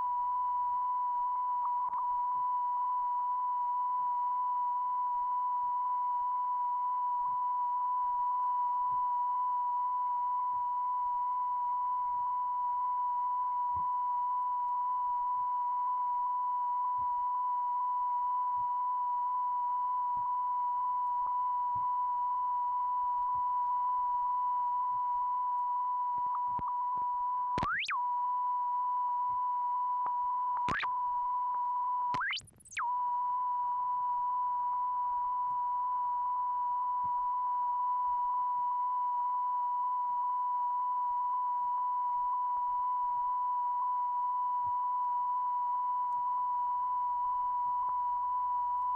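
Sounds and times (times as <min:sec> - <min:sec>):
electronic test tone: 0:11.3 - 0:48.9.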